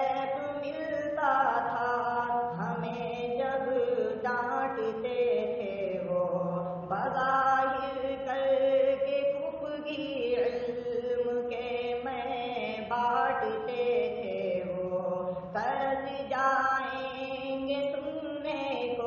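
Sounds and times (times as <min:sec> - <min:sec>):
layered voices singing: 0:02.5 - 0:03.1.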